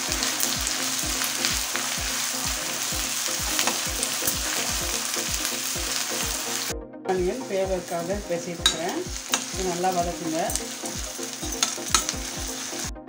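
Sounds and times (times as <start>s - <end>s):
onions sizzling in oil: 0.0s - 6.7s, 7.7s - 13.0s
metal spatula stirring: 8.6s - 10.7s, 11.4s - 12.3s.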